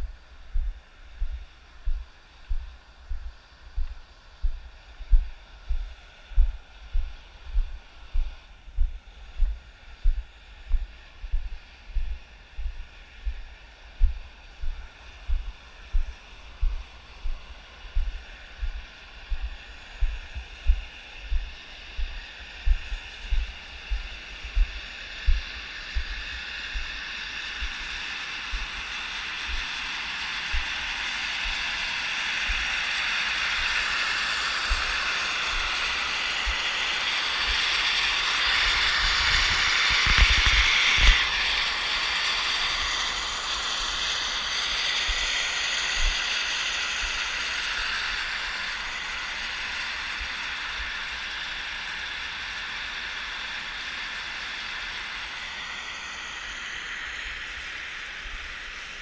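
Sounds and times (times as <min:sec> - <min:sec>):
steam hissing from vent: 0:00.0 - 0:59.0.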